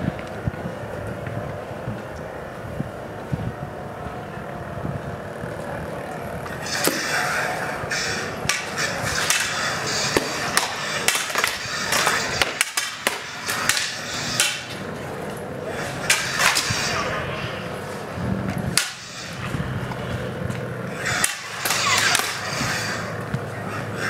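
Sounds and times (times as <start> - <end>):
outdoor background noise: 0.0 - 24.0
sharp clacks of blades striking: 8.4 - 14.8, 18.8 - 19.1, 21.1 - 22.5.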